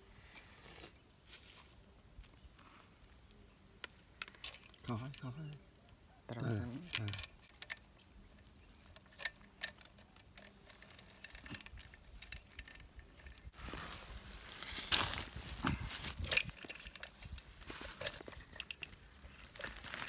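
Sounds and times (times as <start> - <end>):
handling rustle: 0.0 - 20.0
saw chain clinking and rattling: 4.2 - 13.6, 15.8 - 20.0.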